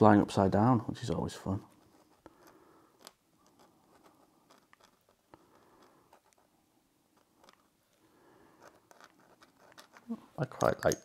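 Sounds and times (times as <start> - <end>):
pen nib scratching on paper: 1.6 - 7.7, 8.6 - 10.2.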